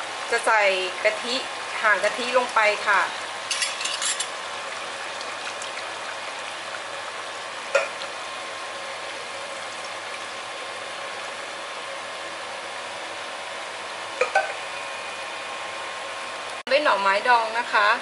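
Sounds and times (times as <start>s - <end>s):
liquid pouring: 1.0s - 11.2s.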